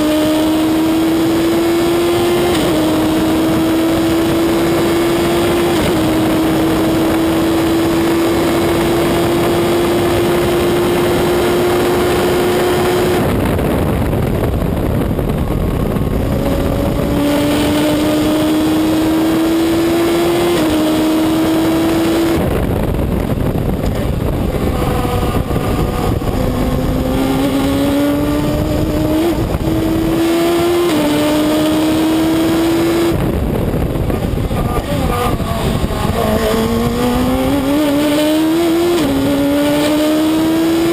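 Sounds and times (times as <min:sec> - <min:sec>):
racing car engine revving: 0:00.0 - 0:40.9
wind and road noise: 0:00.0 - 0:40.9.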